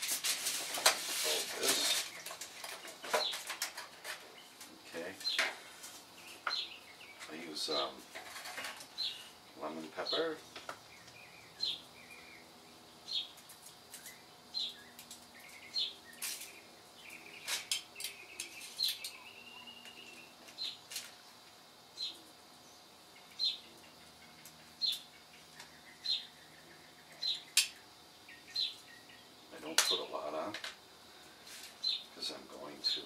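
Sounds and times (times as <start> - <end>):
bird chirping: 6.1 - 21.4, 22.0 - 30.5, 31.8 - 33.0.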